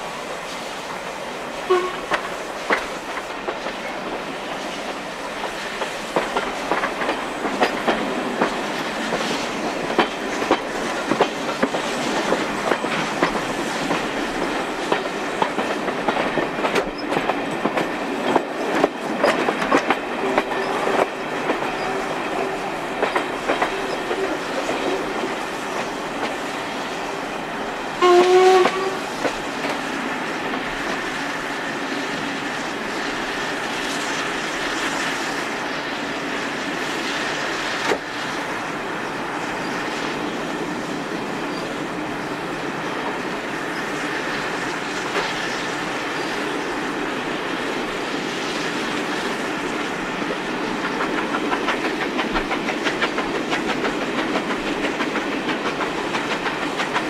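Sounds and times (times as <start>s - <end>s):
steam locomotive whistle: 1.6s - 2.3s, 20.2s - 25.4s, 28.0s - 29.2s
wheels clicking over rail joints: 4.9s - 26.4s, 50.6s - 57.0s.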